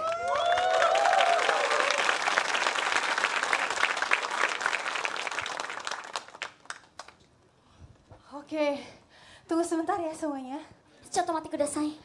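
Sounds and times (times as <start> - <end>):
audience applauding: 0.0 - 7.2.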